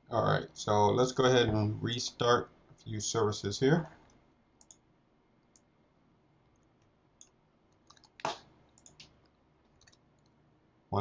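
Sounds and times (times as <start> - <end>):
computer keys clicking: 4.0 - 4.8, 6.5 - 10.4.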